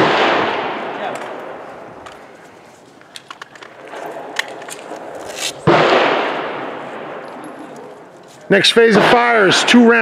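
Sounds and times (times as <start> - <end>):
gunshot echoing: 0.0 - 1.7, 3.9 - 7.5
handgun loading clicks: 3.0 - 5.6.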